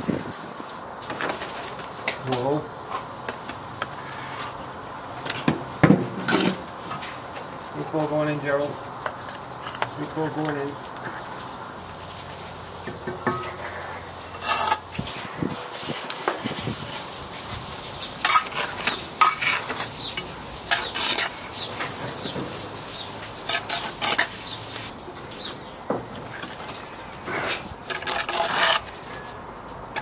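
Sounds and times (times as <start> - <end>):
trowel scraping mortar: 3.8 - 4.6, 13.0 - 24.9, 26.2 - 30.0.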